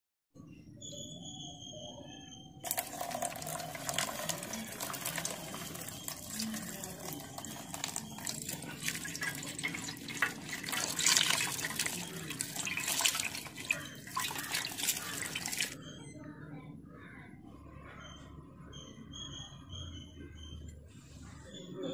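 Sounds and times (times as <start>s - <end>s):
tap water splashing into bowl: 2.6s - 15.8s.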